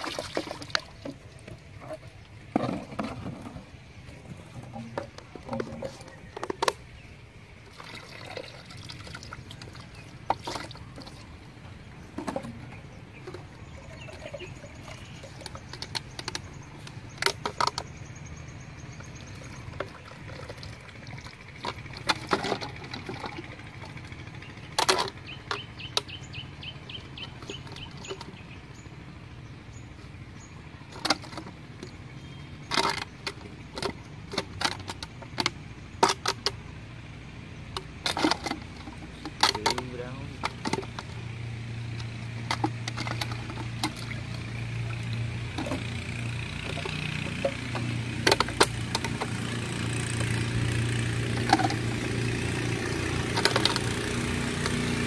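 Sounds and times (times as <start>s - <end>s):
water pouring into bucket: 0.0s - 1.2s, 7.7s - 11.3s, 19.3s - 23.5s
plastic bottles clicking and knocking: 0.0s - 7.0s, 12.1s - 18.0s, 19.3s - 26.1s, 30.9s - 36.6s, 37.7s - 41.2s, 41.8s - 55.0s.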